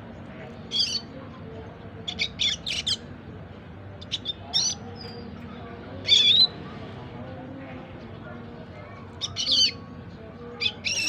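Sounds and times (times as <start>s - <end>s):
bird high chirps: 0.7s - 1.1s, 2.1s - 3.0s, 4.0s - 5.3s, 6.0s - 6.6s, 9.2s - 9.8s, 10.6s - 11.0s.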